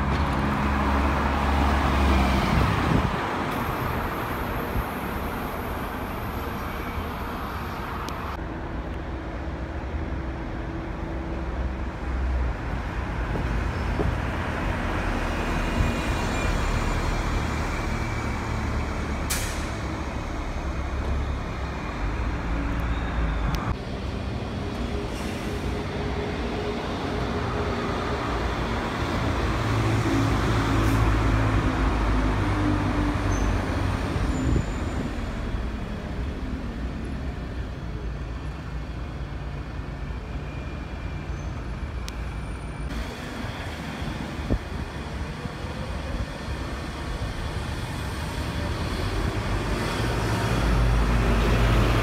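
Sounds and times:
bus engine rumble: 0.0s - 52.0s
air brakes hissing: 19.1s - 20.0s, 25.0s - 25.9s.

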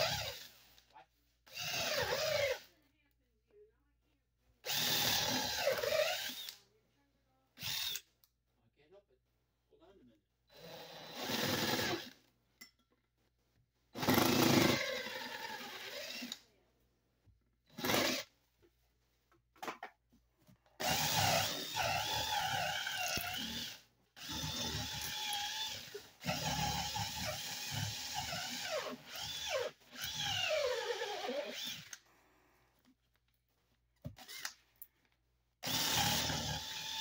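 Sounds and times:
cordless drill boring into wood: 0.0s - 0.8s, 1.5s - 2.7s, 4.6s - 6.6s, 7.6s - 8.0s, 10.5s - 12.2s, 14.0s - 16.4s, 17.7s - 18.3s, 20.8s - 32.0s, 34.2s - 34.6s, 35.6s - 37.0s.

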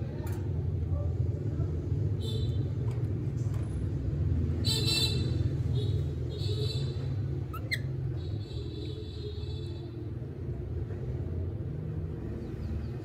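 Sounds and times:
baby monkey squeaking: 7.4s - 8.2s.

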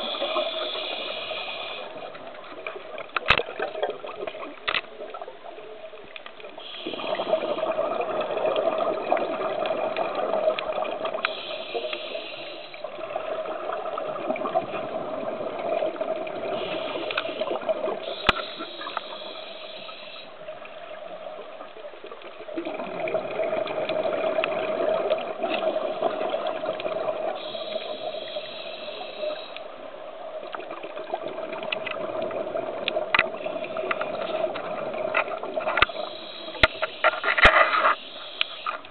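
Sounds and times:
scuba regulator breathing bubbles: 0.0s - 2.1s, 6.6s - 20.4s, 22.6s - 29.6s.

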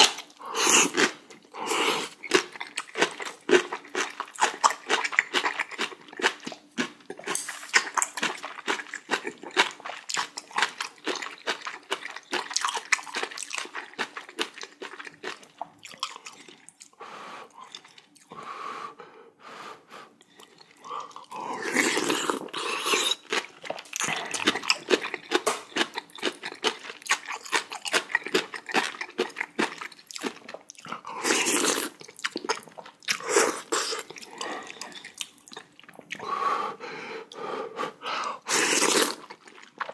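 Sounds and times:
wet chewing and mouth smacks: 2.1s - 17.0s, 20.2s - 36.2s, 38.7s - 39.9s
slurping: 20.2s - 25.4s, 38.2s - 39.9s.

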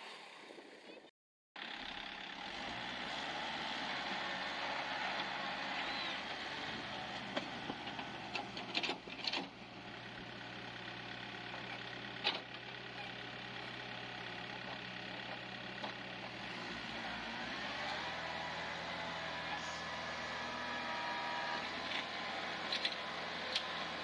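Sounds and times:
tractor diesel engine under load: 1.6s - 24.0s.

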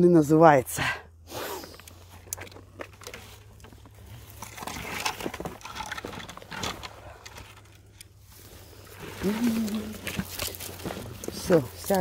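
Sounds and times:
rustling through dry brush: 1.4s - 12.0s
pine needles crunching underfoot: 1.8s - 12.0s
twigs snapping: 9.3s - 12.0s.

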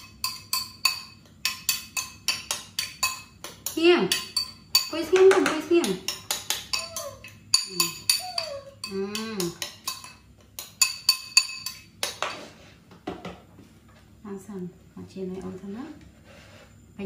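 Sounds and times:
metal spoon clinking in bowl: 0.0s - 5.2s, 6.0s - 12.2s.

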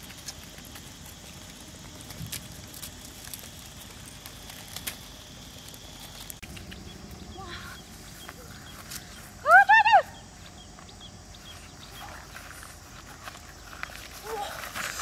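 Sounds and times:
light clicks and crackles: 0.0s - 7.1s.

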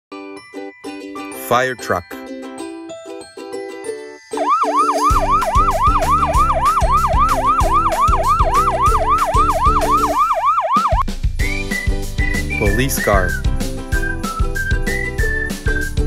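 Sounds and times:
children's music with a beat: 0.1s - 1.4s, 2.2s - 16.0s
fire truck siren yelping: 4.4s - 11.0s.

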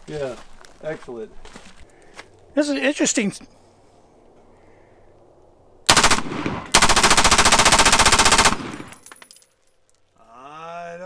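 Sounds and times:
gunshot echo: 5.9s - 7.0s
automatic gunfire bursts: 5.9s - 9.0s.

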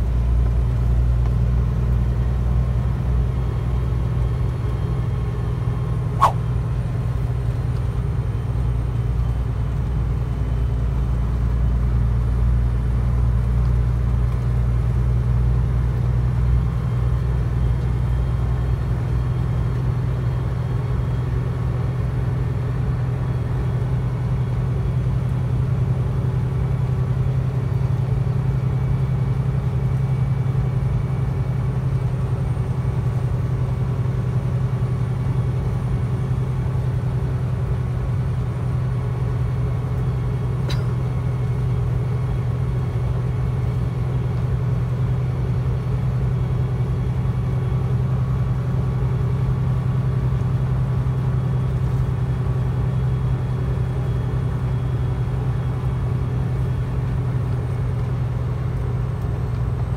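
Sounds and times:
truck engine droning: 0.0s - 59.9s
brief click: 40.7s - 40.9s.

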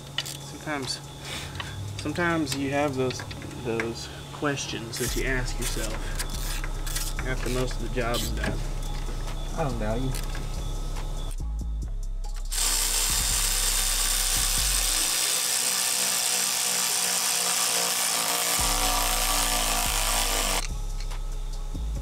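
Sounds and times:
electric ratchet whirring: 5.0s - 9.1s, 12.4s - 21.2s.

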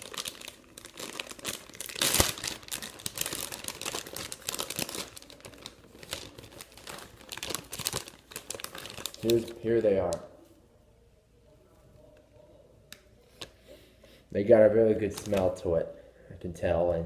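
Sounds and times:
plastic wrapper crinkling: 0.0s - 10.3s, 14.9s - 15.7s.

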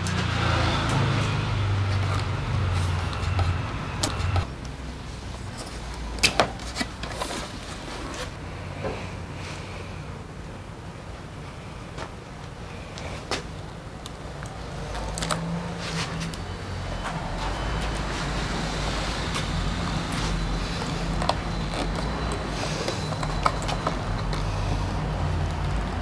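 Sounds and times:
vehicle engine low rumble: 0.0s - 6.2s, 12.6s - 26.0s.

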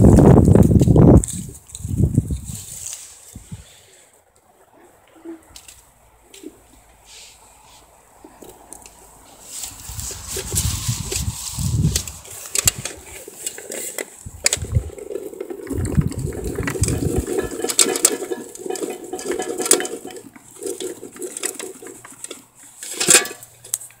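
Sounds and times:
berries and bucket clicking: 8.3s - 24.0s
low handling rumble: 14.3s - 21.2s.

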